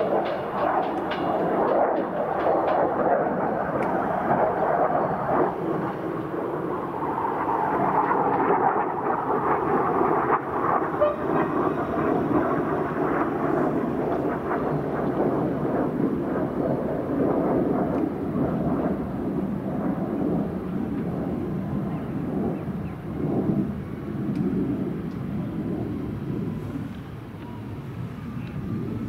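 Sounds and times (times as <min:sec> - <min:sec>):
train wheels on rails: 0:00.0 - 0:06.3.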